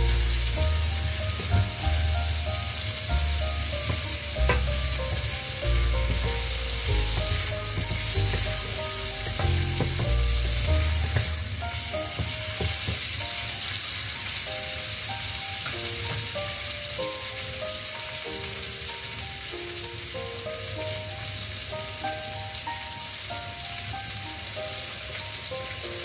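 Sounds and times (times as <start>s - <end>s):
vegetables sizzling in hot oil: 0.0s - 26.0s
wooden spatula knocking pan: 0.1s - 13.5s.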